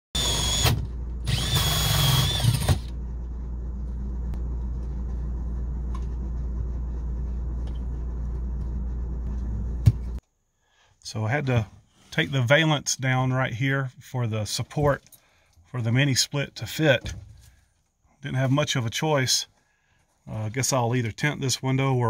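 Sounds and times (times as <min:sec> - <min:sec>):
electric drill whining: 0:00.2 - 0:03.0
steady low hum: 0:00.2 - 0:10.2.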